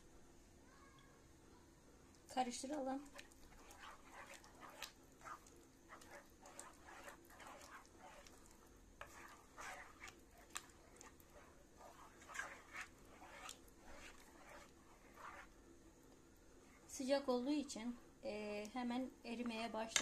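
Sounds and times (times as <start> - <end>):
wooden spoon scraping a pan: 2.6 - 15.6.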